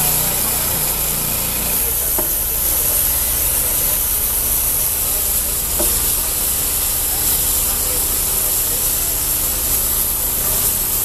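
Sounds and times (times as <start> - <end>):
band saw blade hissing through log: 0.0 - 11.0
engine drone: 0.0 - 11.0.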